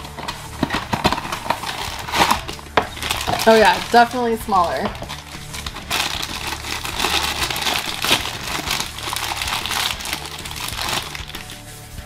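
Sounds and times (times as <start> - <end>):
foil pouch crinkling: 0.0 - 11.6.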